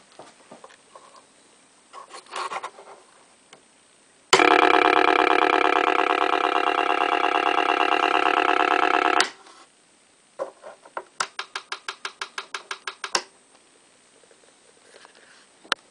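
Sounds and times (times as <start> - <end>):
model boat motor droning: 4.4 - 9.3
rapid small clicks: 11.2 - 13.3.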